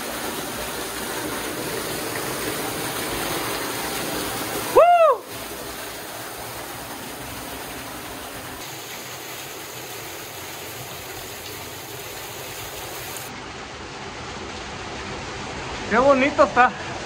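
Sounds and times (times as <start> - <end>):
small waterfall splashing: 0.0 - 13.3.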